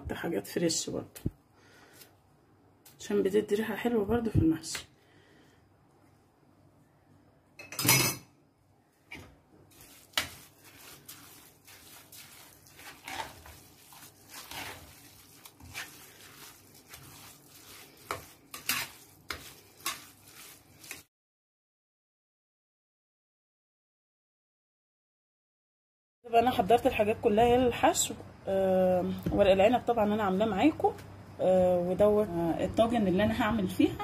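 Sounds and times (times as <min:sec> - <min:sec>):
spoon scraping stuffing in pan: 0:09.1 - 0:21.1.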